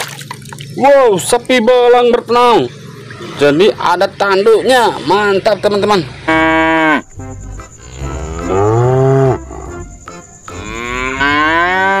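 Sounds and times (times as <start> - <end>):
cows mooing: 6.1 - 9.9, 10.5 - 12.0.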